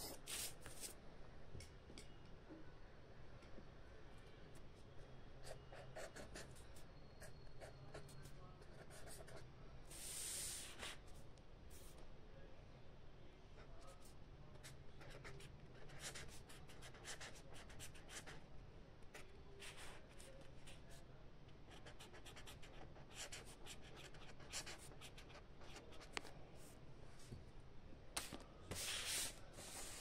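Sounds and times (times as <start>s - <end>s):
pen scratching on paper: 5.4s - 6.6s, 8.6s - 9.4s, 15.0s - 18.4s, 21.7s - 26.2s.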